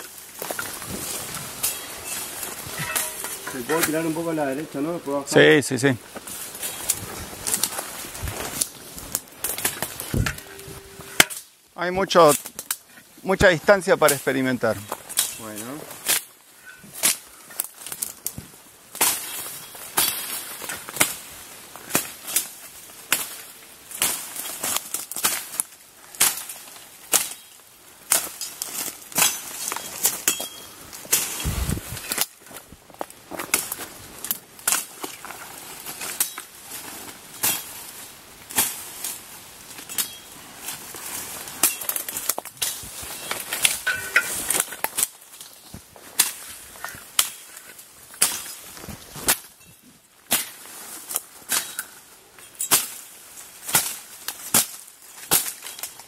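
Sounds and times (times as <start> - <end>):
twigs and canes snapping: 0.0 - 4.3, 6.1 - 10.5, 12.2 - 13.1, 14.9 - 31.4, 32.0 - 49.6, 52.6 - 56.0
blade chopping undergrowth: 0.0 - 4.4
leaves rustling: 0.0 - 56.0.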